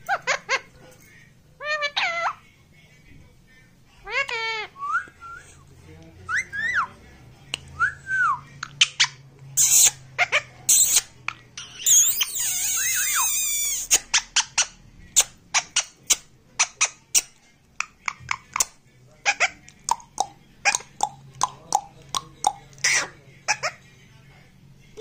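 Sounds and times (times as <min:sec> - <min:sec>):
parakeet calling: 0:08.8 - 0:18.6, 0:22.8 - 0:23.8.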